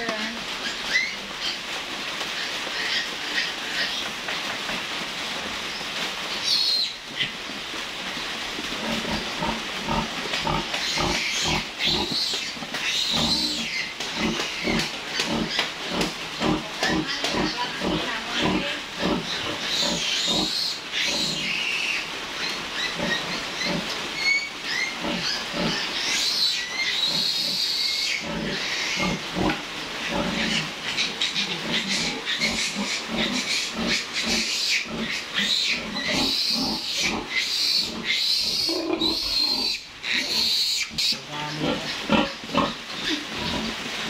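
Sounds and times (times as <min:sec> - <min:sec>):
piglets squealing: 0:09.9 - 0:29.2, 0:30.1 - 0:43.2.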